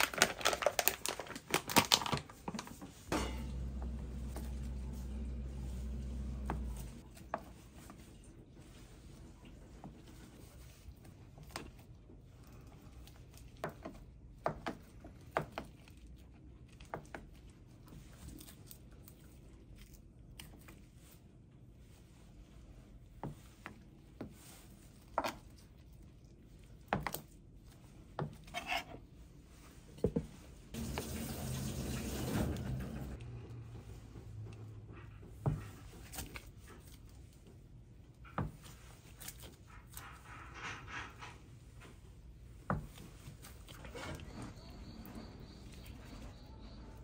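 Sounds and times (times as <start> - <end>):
low steady hum: 3.1 - 14.4.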